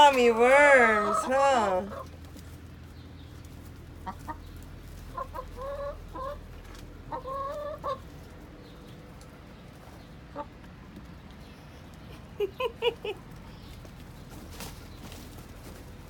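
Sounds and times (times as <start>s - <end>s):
hen drawn-out calls: 0.0s - 2.2s
hens clucking: 0.0s - 16.0s.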